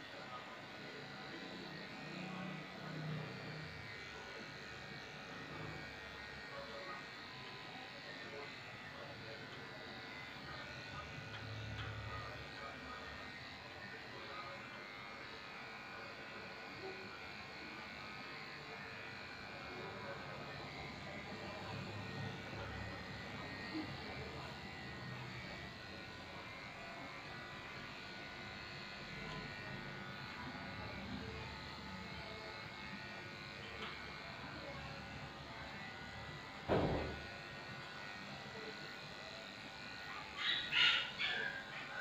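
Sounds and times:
electric clippers buzzing: 0:00.0 - 0:42.0.

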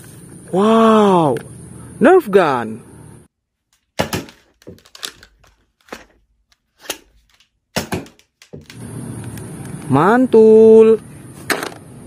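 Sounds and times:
foam dart blasters clacking: 0:04.0 - 0:05.3, 0:06.8 - 0:08.8.

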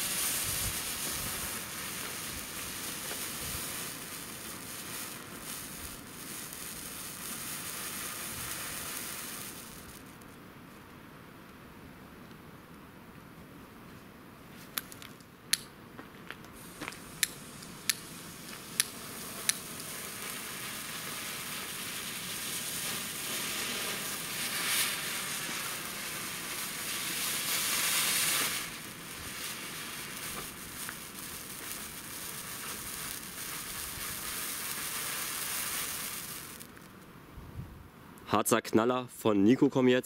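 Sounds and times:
sharp firework cracks: 0:00.0 - 0:10.3, 0:16.6 - 0:37.1
firework sparks crackling hiss: 0:00.0 - 0:10.4, 0:16.5 - 0:37.7.

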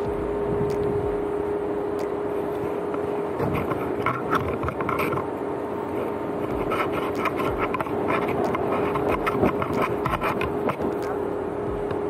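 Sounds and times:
engine hum: 0:00.0 - 0:12.0
vehicle rattling and creaking: 0:02.9 - 0:11.2.

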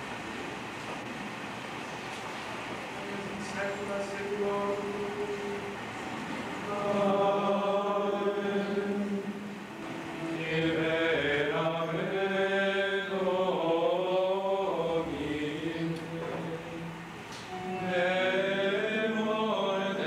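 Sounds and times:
men singing slow chant: 0:06.6 - 0:09.5, 0:10.1 - 0:20.0.

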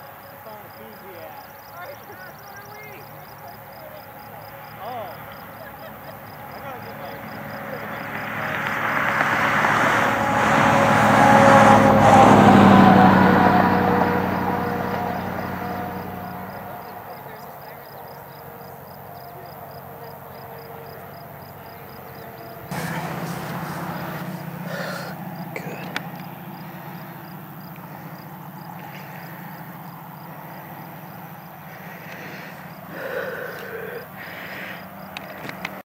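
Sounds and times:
engine idling hum: 0:00.0 - 0:35.8
vehicle passing by: 0:00.0 - 0:35.8
faint high ticking: 0:20.9 - 0:35.8.

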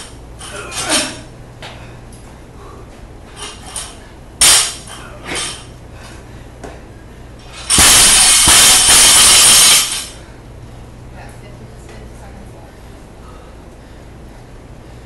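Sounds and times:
barbell crashing onto platform: 0:04.4 - 0:05.6, 0:07.7 - 0:10.1
barbell knocks and clanks: 0:07.6 - 0:10.1.

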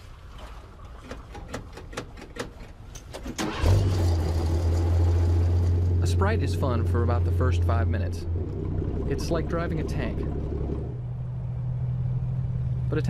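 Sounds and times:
snow vehicle engine starting and droning: 0:03.3 - 0:13.0.

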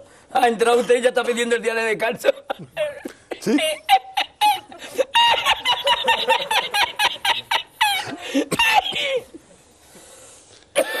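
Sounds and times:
man laughing in squeaky cackle: 0:02.8 - 0:08.9.

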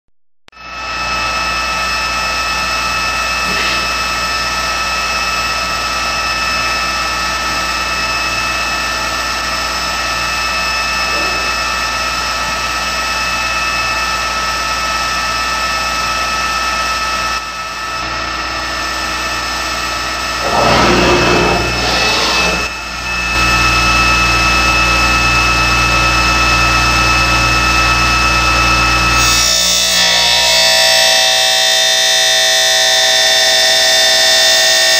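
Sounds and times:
disc cutting into metal: 0:03.4 - 0:04.0, 0:20.4 - 0:22.7
cut-off disc whining: 0:20.4 - 0:22.8.

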